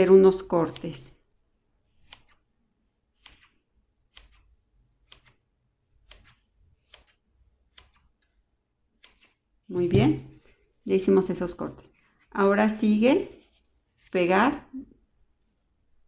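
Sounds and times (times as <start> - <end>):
scissors snipping foam: 0.4 - 1.1, 2.0 - 2.5, 3.1 - 5.4, 6.0 - 8.3, 8.9 - 9.4.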